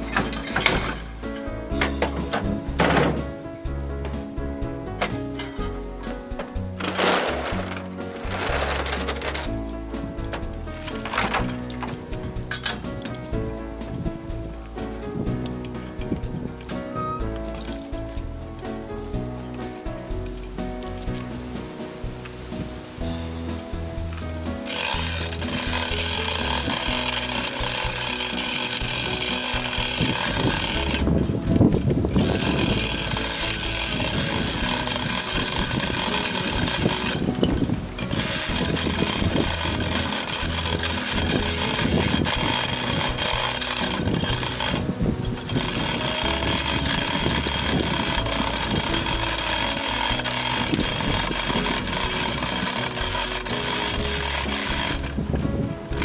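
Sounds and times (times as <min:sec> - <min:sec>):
hoist chain rattling: 0:00.0 - 0:04.3, 0:04.9 - 0:22.8, 0:23.4 - 0:56.0
ratchet pawl clicking: 0:24.2 - 0:56.0.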